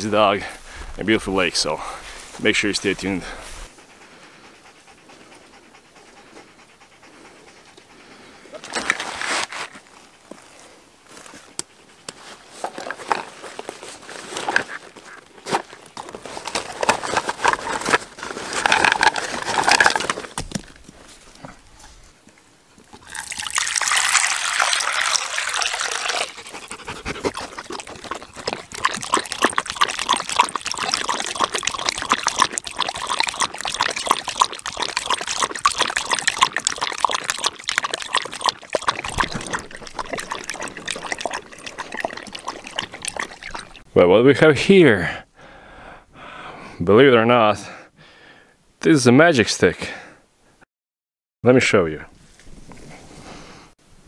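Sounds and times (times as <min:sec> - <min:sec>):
water splashing and dribbling: 0:00.0 - 0:03.7, 0:16.0 - 0:20.8, 0:22.9 - 0:43.9
water pouring into a cup: 0:23.0 - 0:43.8.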